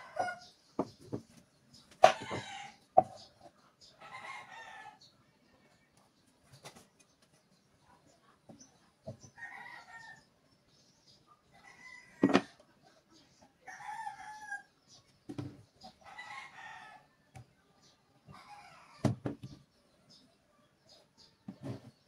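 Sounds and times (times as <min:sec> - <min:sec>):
wooden blocks knocking on workbench: 0:00.8 - 0:01.3.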